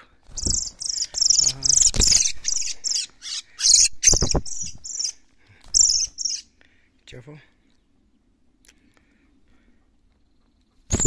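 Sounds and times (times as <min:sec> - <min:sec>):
bird distress squeals: 0:00.4 - 0:06.5.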